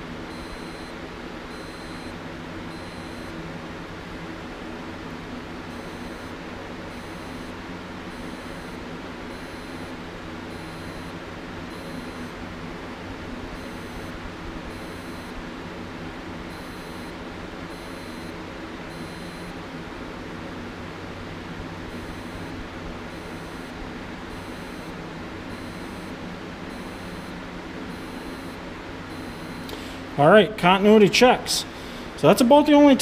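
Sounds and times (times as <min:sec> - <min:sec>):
steady low hum: 0:00.0 - 0:33.0
multimeter short high beeps: 0:00.3 - 0:00.9, 0:01.5 - 0:02.1, 0:02.7 - 0:03.3, 0:05.8 - 0:07.5, 0:09.4 - 0:11.1, 0:11.7 - 0:12.3, 0:13.6 - 0:14.1, 0:14.7 - 0:15.4, 0:16.6 - 0:17.1, 0:17.7 - 0:19.5, 0:21.9 - 0:22.5, 0:23.2 - 0:24.9, 0:25.5 - 0:29.8.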